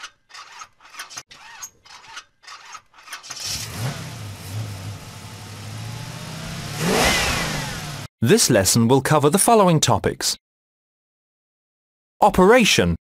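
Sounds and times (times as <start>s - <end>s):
car engine starting and revving: 3.4s - 8.1s.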